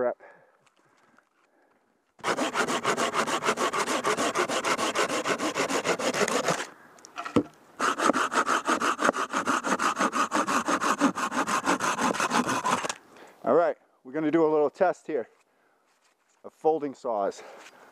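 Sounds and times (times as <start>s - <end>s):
saw cutting log: 2.2s - 6.7s, 7.8s - 13.0s.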